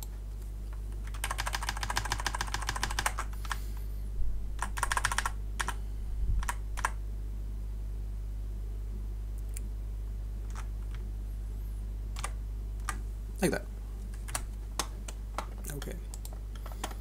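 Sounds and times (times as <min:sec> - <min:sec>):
low electrical hum: 0:00.0 - 0:17.0
keyboard typing: 0:01.0 - 0:03.6, 0:04.6 - 0:05.8, 0:06.4 - 0:07.0, 0:10.5 - 0:11.0, 0:12.2 - 0:13.0, 0:14.1 - 0:17.0.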